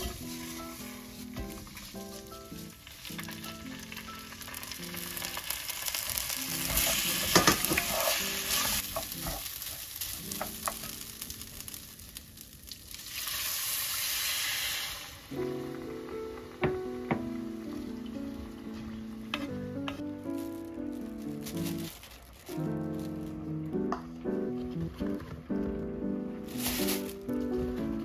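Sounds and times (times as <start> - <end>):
soft piano music: 0.0 - 13.1, 15.1 - 28.0
broth pouring into pot: 0.0 - 16.7
rice sizzling in oil: 0.0 - 23.9, 26.4 - 28.0.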